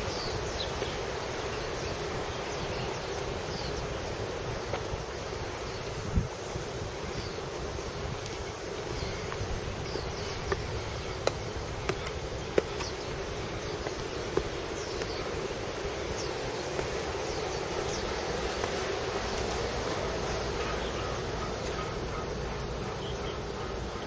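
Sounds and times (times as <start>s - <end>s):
insect buzzing: 0.0s - 24.0s.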